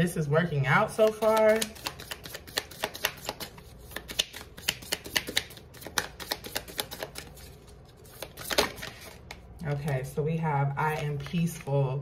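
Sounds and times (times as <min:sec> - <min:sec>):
cards being shuffled: 0:01.0 - 0:10.0.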